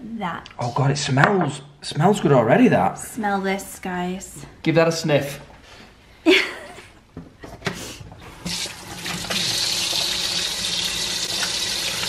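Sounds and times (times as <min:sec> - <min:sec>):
water running into metal sink: 0:08.4 - 0:12.0.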